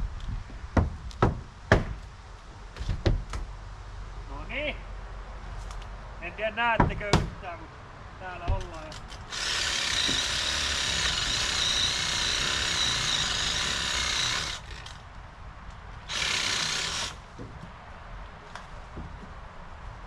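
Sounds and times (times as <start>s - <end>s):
saw cutting a branch: 8.8s - 15.0s, 16.1s - 17.2s.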